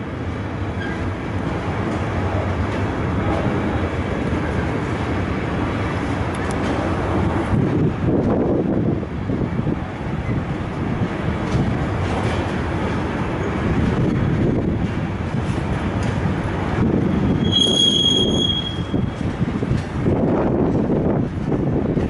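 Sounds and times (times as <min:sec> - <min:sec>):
freight train rolling past: 0:00.0 - 0:22.0
high wheel squeal: 0:17.3 - 0:19.1.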